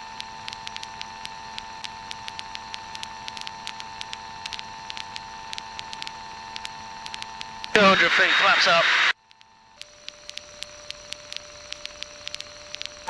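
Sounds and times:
faint crackling clicks: 0.0 - 7.8, 9.1 - 13.0
intercom hum and hiss: 0.0 - 9.2.

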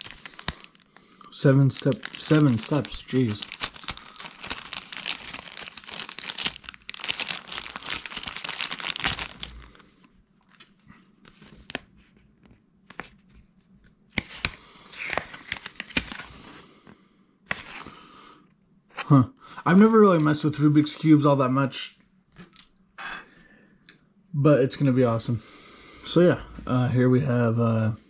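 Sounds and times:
plastic bag crinkling: 0.0 - 10.7
paper rustling: 1.8 - 9.7.

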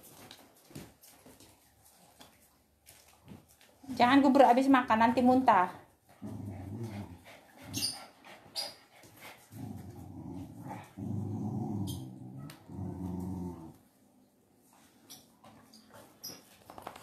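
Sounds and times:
dogs growling: 6.1 - 7.8, 9.2 - 13.9.

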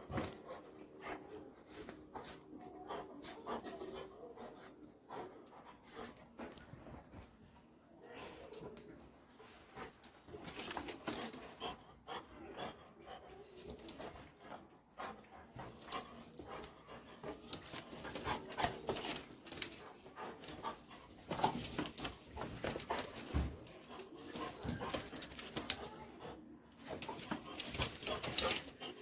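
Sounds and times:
dog whimpering and panting: 0.0 - 29.0
claws clicking on tiled floor: 10.0 - 12.2, 13.6 - 29.0.

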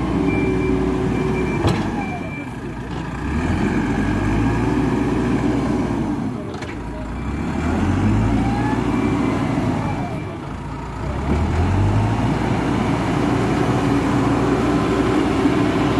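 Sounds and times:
backhoe diesel engine revving: 0.0 - 15.9.

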